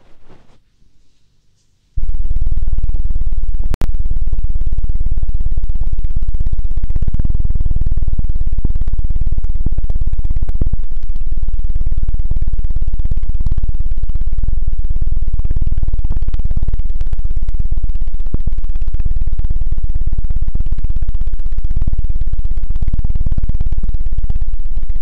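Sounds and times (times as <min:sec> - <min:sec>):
hands fanning over microphone: 0:00.0 - 0:01.2.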